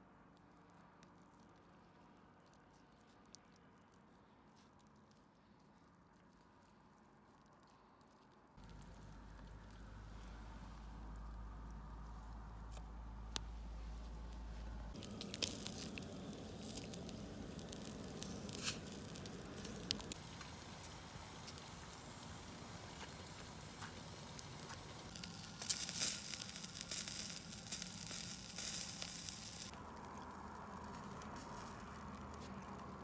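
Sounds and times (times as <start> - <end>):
wood fire crackling: 0.7 - 33.0
food sizzling: 14.9 - 31.9.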